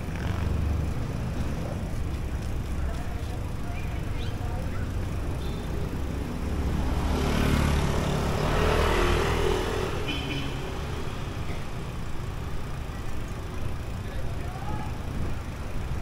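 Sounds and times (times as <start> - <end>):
street traffic rumble: 0.0 - 16.0
vehicle passing close by: 6.5 - 11.3.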